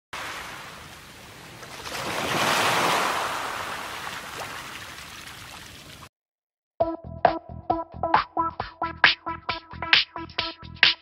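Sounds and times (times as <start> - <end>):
wave breaking: 0.2 - 5.7.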